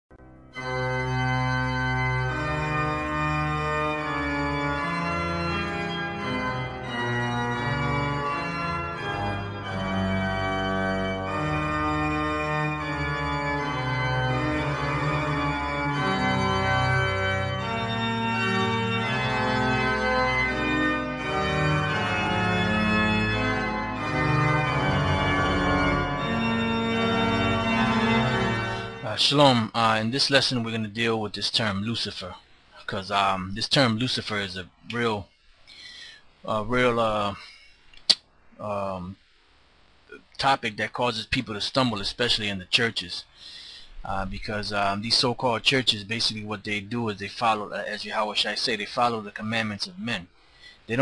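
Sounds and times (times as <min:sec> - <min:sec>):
instrumental music with held chords: 0:00.1 - 0:29.2.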